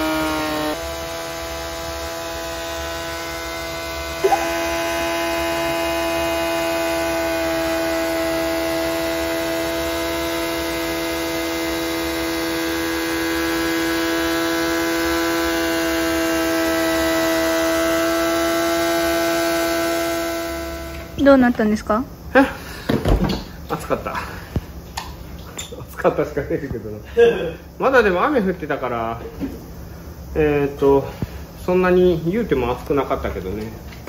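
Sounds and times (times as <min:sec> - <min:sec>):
motorcycle engine high-pitched drone: 0:00.0 - 0:22.5.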